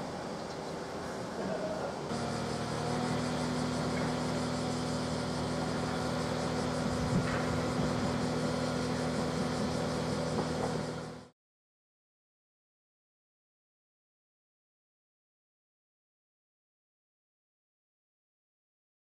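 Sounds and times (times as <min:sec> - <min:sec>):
train idling hum: 0:00.0 - 0:11.3.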